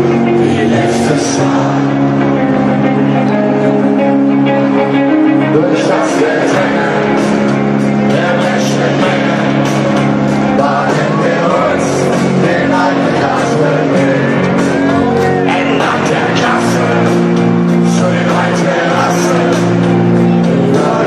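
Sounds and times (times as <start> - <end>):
voices singing: 0.0 - 2.4, 5.4 - 21.0
rock band playing live: 0.0 - 21.0.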